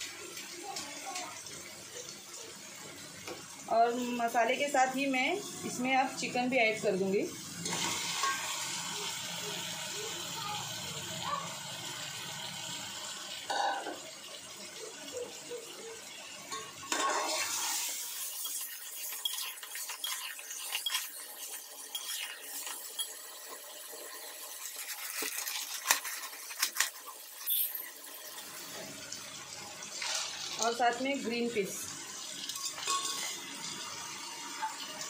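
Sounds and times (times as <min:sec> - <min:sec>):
metal spoon scraping a pot: 0:16.5 - 0:28.3, 0:32.6 - 0:33.4.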